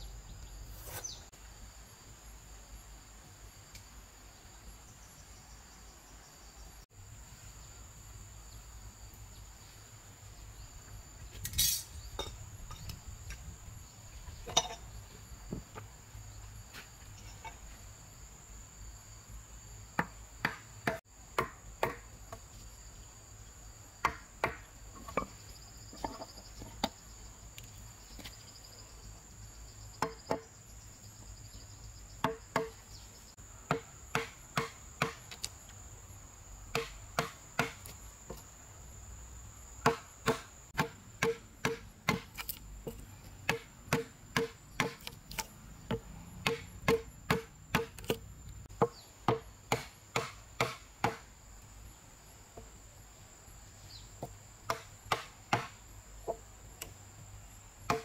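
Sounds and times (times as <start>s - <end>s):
high insect drone: 0.0s - 58.0s
hammer striking chisel into wood: 39.8s - 42.3s, 43.5s - 45.1s, 45.9s - 48.2s, 48.8s - 51.2s.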